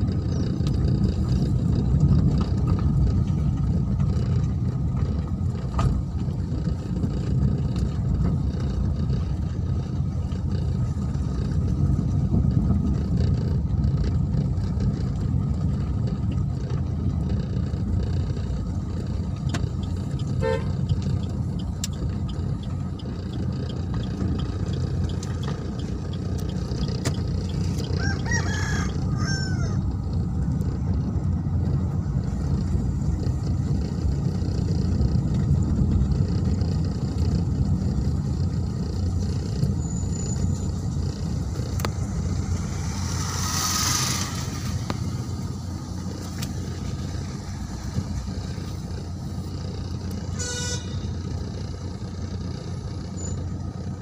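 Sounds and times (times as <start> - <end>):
vehicle rumble from inside: 0.0 - 54.0
rooster crowing: 27.9 - 29.8.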